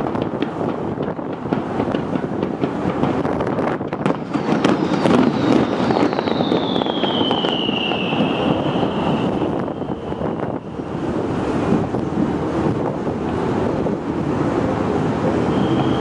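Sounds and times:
fireworks popping and crackling: 0.0s - 10.8s
steady rushing noise: 0.0s - 16.0s
high whistle sliding down: 4.2s - 10.9s, 15.5s - 16.0s.

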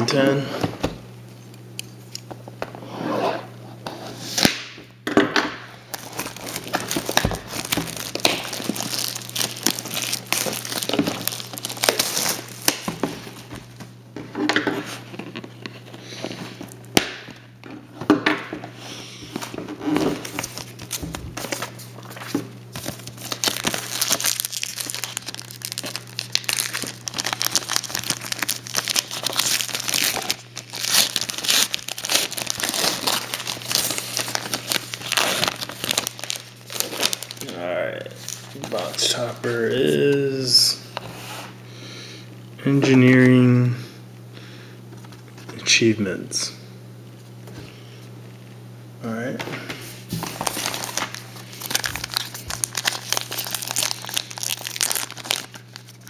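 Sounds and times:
plastic wrap crinkling and tearing: 5.9s - 13.6s, 19.4s - 40.5s, 50.0s - 56.0s
wrapper crinkling and tearing: 5.9s - 13.6s, 19.4s - 40.5s, 50.1s - 56.0s.

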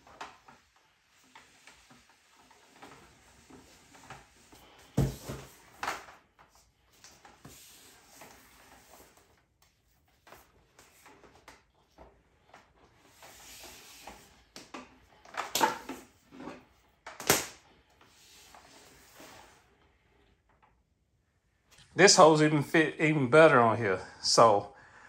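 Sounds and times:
rubber hose dragging on concrete: 0.0s - 17.0s, 17.6s - 20.3s.

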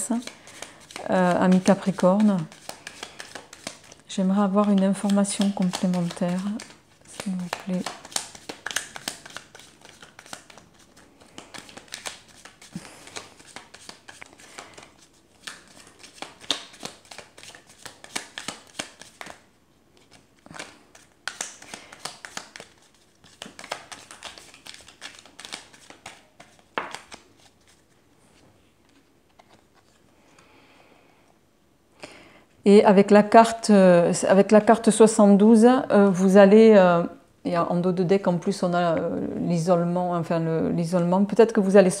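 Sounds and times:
cards being shuffled by hand: 0.0s - 30.2s.

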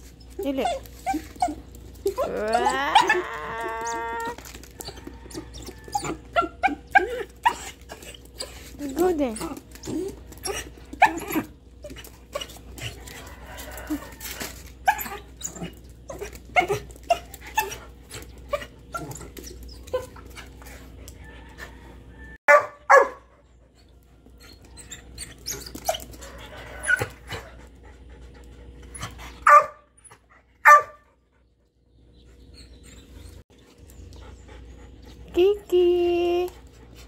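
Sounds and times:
dog yipping: 4.9s - 8.1s, 22.5s - 23.2s, 29.4s - 29.8s, 30.6s - 31.0s.

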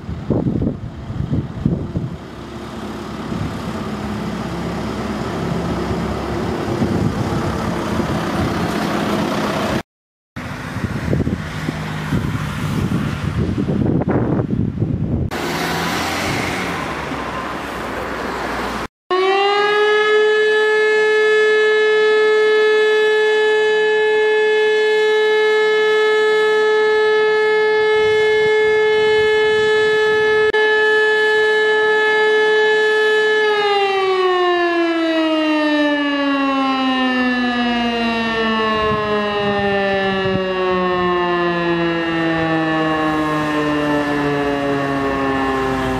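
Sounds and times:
wind buffeting microphone: 0.0s - 9.8s, 10.4s - 15.4s, 27.4s - 30.5s, 37.6s - 45.9s
siren wailing: 15.3s - 18.5s, 19.1s - 45.9s.

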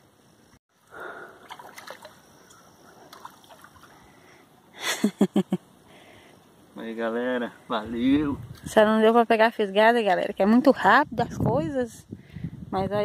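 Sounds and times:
fish splashing at water surface: 1.4s - 2.4s.

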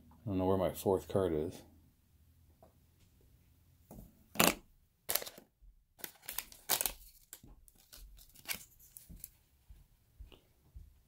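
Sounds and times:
cards and packaging rustling: 4.3s - 9.4s.

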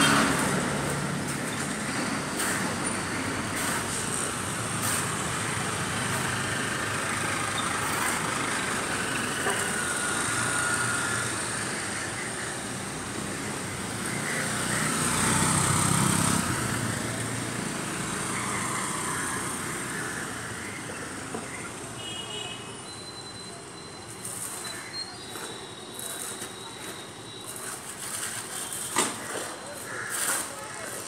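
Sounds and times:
motor scooter passing: 0.0s - 21.3s
vehicles passing: 0.0s - 22.1s, 22.8s - 31.0s.

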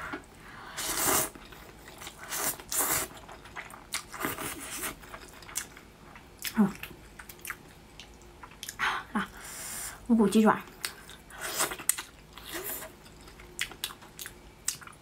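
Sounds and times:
chewing: 1.4s - 8.8s, 10.8s - 15.0s.

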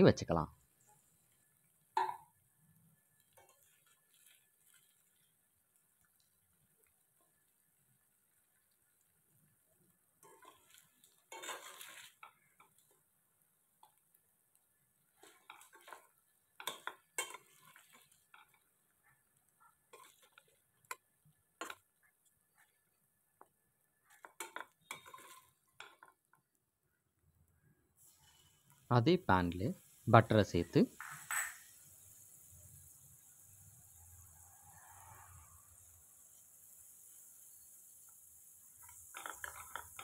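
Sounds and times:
metal spatula scraping a pan: 3.2s - 5.4s, 10.2s - 13.0s, 15.1s - 21.9s, 24.0s - 26.1s, 38.8s - 40.0s.

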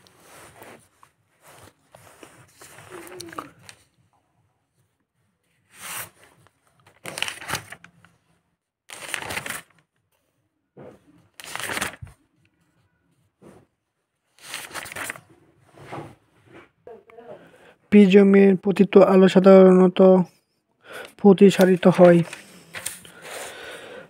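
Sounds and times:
book pages turning: 0.0s - 4.0s, 5.6s - 8.2s, 8.9s - 9.9s, 10.9s - 12.2s, 14.3s - 16.0s, 21.0s - 23.6s.

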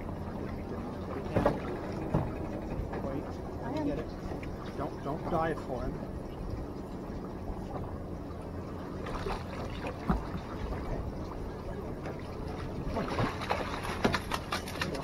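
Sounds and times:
outboard motor humming: 0.0s - 15.0s
fish thrashing and splashing: 9.0s - 10.8s, 12.4s - 15.0s.

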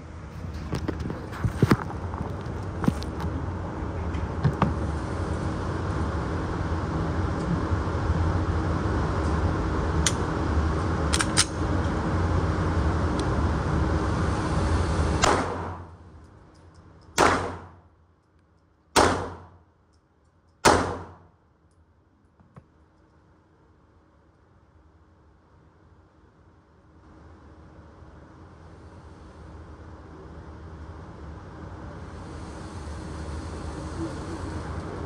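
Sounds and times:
steady low rumble: 0.0s - 21.6s
handgun shots with echo: 15.2s - 15.8s, 17.2s - 17.7s, 19.0s - 19.6s, 20.6s - 21.2s.

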